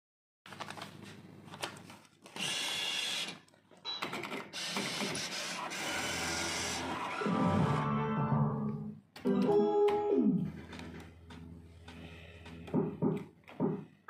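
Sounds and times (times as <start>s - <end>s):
slot machine mechanical whirr: 4.5s - 8.4s.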